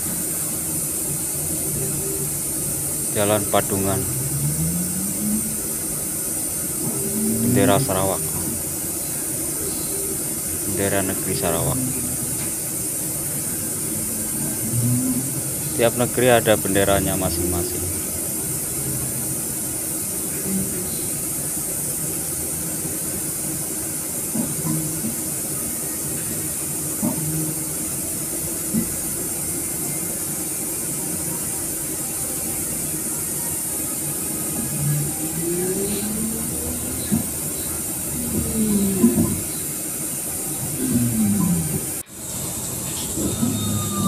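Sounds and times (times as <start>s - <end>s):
street traffic noise: 0.0s - 44.0s
engine tones rising and falling: 1.4s - 21.0s, 32.5s - 44.0s.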